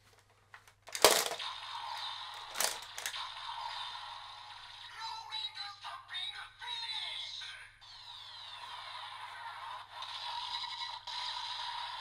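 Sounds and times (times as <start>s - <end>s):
plastic click of toy: 0.9s - 1.4s, 2.5s - 3.2s.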